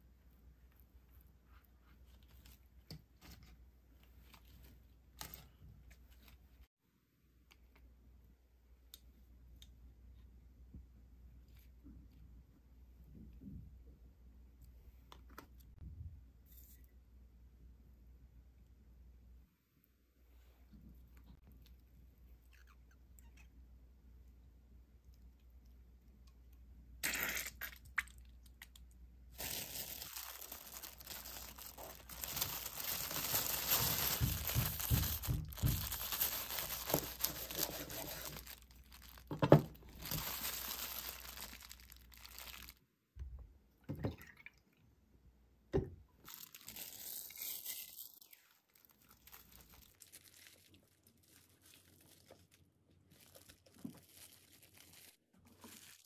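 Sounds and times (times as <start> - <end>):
plastic wrap crinkling: 28.2 - 42.8, 46.2 - 56.0.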